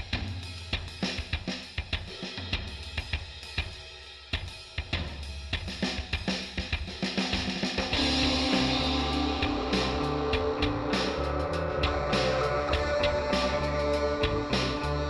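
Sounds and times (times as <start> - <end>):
drum kit beat: 0.0 - 15.0
bass line: 8.0 - 15.0.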